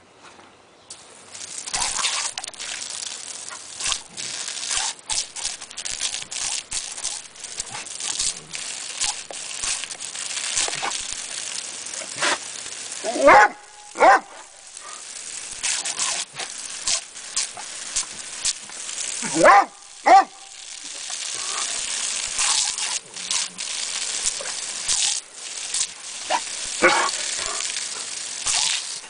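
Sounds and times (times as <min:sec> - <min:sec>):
water spraying from hose: 0:00.9 - 0:29.0
dog snapping at water: 0:01.5 - 0:12.5, 0:15.0 - 0:20.4, 0:21.2 - 0:29.0
dog barking: 0:13.2 - 0:14.4, 0:19.3 - 0:20.5, 0:26.3 - 0:27.6.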